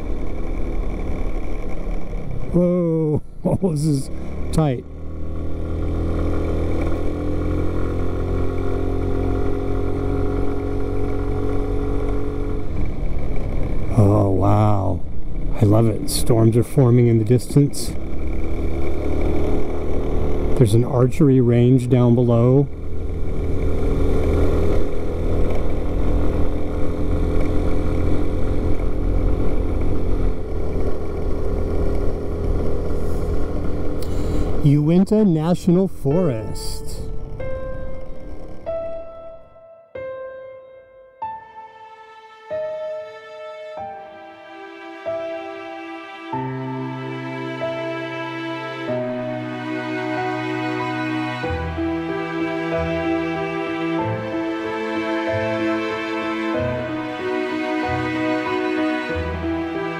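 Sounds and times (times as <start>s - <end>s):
scooter engine running: 0.0s - 35.2s, 36.1s - 39.5s, 45.2s - 59.9s
low wind rumble: 0.0s - 40.6s.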